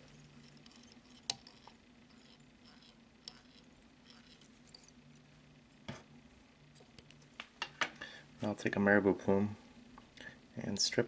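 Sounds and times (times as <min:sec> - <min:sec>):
low steady hum: 0:00.0 - 0:11.0
faint ticks of thread winding: 0:00.4 - 0:04.9.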